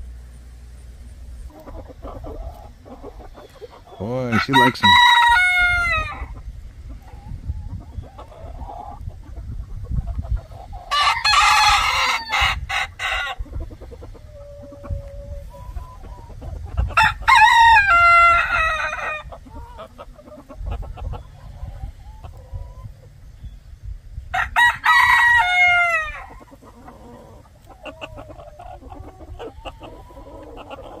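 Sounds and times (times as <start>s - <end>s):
chickens clucking: 0.0s - 31.0s
rooster crowing: 4.2s - 6.3s, 10.9s - 13.4s, 17.0s - 19.3s, 24.3s - 26.4s.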